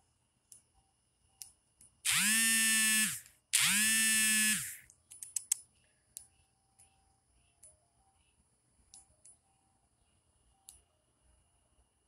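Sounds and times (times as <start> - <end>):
small electric motor buzzing: 2.1 - 4.8.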